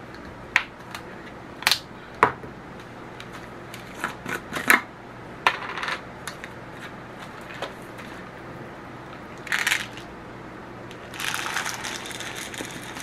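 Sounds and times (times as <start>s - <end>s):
salt crystals poured: 11.1s - 13.0s.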